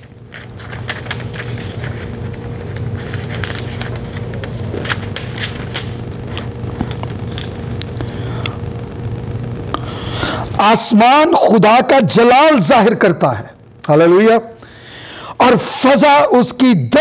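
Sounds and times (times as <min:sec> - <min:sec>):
paper pages turning: 0:00.0 - 0:08.1
steady low hum: 0:00.0 - 0:16.9.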